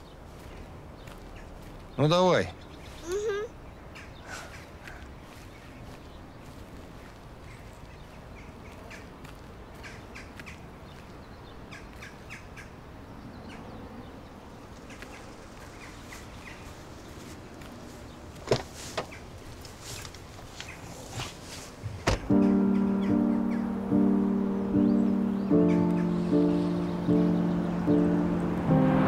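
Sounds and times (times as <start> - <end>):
birds chirping: 0.0 - 29.0
car door opening and shutting: 18.4 - 19.2, 21.9 - 22.4.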